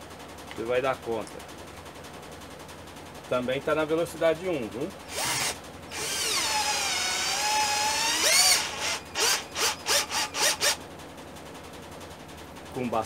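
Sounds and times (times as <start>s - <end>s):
cordless drill motor whining: 5.1s - 10.8s
short drill motor bursts: 5.1s - 10.8s.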